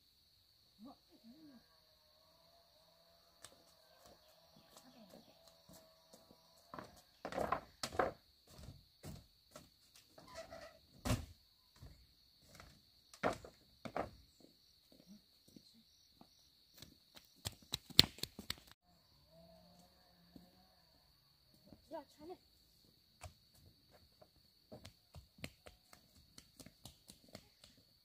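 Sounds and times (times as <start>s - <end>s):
knocks on wood and bamboo: 6.7s - 9.2s.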